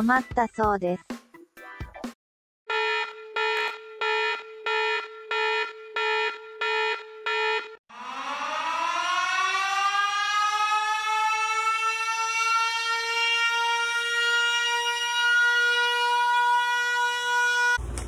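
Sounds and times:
alarm beeps: 0:02.7 - 0:08.7
siren wailing: 0:02.7 - 0:17.8.

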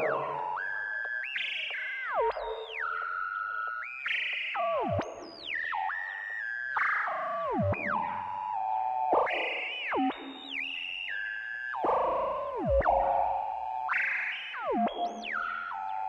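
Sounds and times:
synthesizer music with pitch slides: 0:00.0 - 0:00.6.

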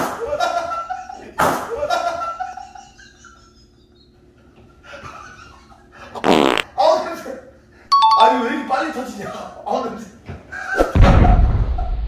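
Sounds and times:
person laughing: 0:00.1 - 0:04.1, 0:10.5 - 0:12.0
buzzy fart sound: 0:06.2 - 0:06.7.

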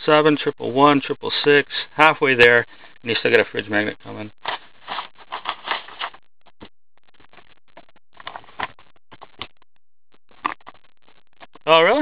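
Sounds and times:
cards rustling: 0:04.4 - 0:06.2.

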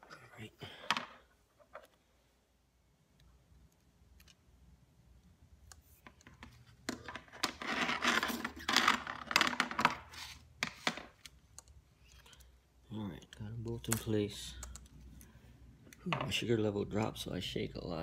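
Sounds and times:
plastic parts scraping and rattling: 0:06.0 - 0:11.2.

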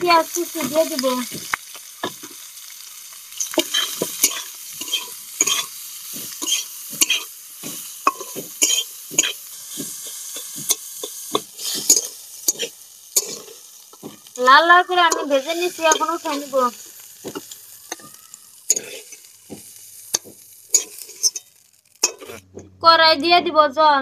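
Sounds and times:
onions sizzling in oil: 0:00.0 - 0:22.7
metal spatula scraping: 0:03.3 - 0:14.3, 0:15.0 - 0:16.6, 0:17.3 - 0:22.7.

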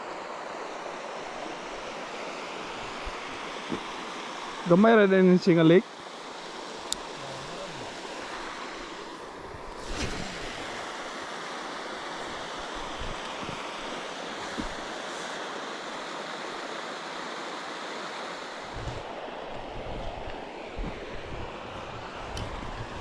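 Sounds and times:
wind rushing over microphone: 0:06.8 - 0:15.3, 0:18.6 - 0:23.0.

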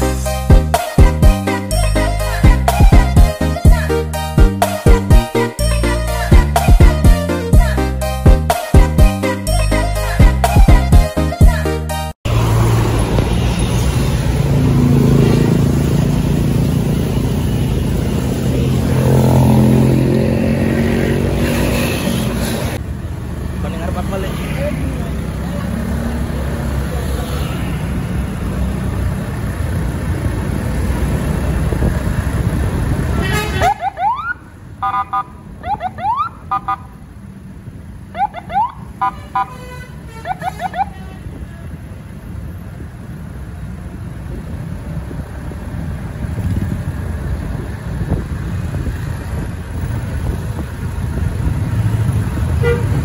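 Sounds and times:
bus engine driving past: 0:12.3 - 0:33.7
motorcycles passing: 0:12.3 - 0:53.0
three-tone horn blips: 0:33.2 - 0:36.9, 0:38.2 - 0:41.2
electronic siren whoops: 0:33.6 - 0:36.8.

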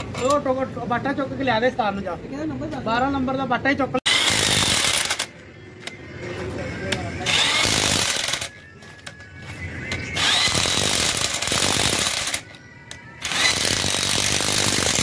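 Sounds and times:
power tool driving fasteners: 0:04.1 - 0:05.3, 0:07.3 - 0:08.5, 0:10.2 - 0:12.6, 0:13.2 - 0:15.0.

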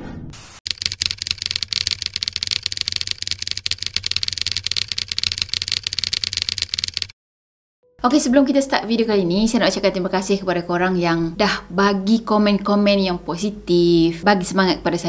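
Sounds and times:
rapid keyboard typing clicks: 0:00.7 - 0:07.2.

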